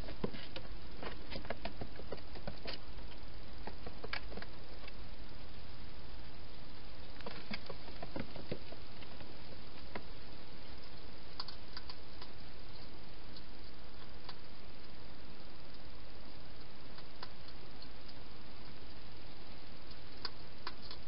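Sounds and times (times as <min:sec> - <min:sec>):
rustles: 0:00.0 - 0:21.0
steady hiss: 0:00.0 - 0:21.0
hedgehog eating clicks and crunches: 0:10.8 - 0:14.4, 0:19.9 - 0:21.0.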